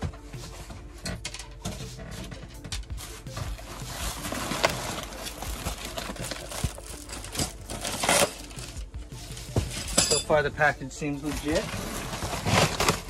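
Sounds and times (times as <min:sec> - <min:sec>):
packaging wrap crinkling: 0:03.0 - 0:08.9, 0:11.3 - 0:13.0.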